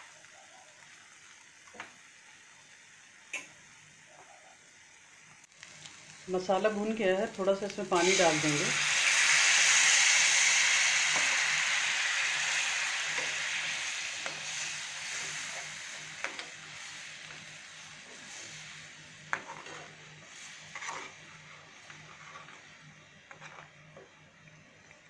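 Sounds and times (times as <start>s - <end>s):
food sizzling in a pan: 0.0s - 25.0s
metal spatula scraping a pan: 18.1s - 23.8s.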